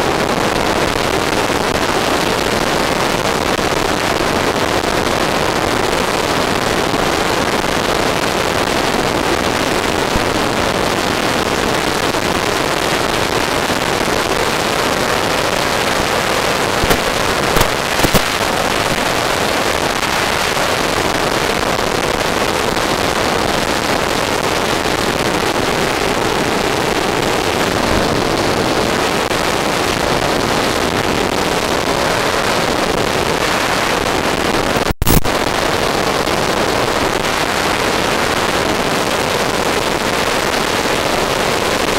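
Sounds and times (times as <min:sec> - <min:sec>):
short crackles: 0:16.7 - 0:19.4, 0:34.8 - 0:35.4.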